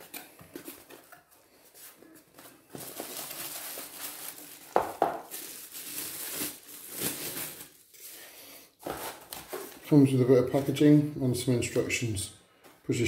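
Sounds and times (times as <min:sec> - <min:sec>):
cardboard and plastic rustling: 0:00.0 - 0:08.0, 0:08.8 - 0:10.0.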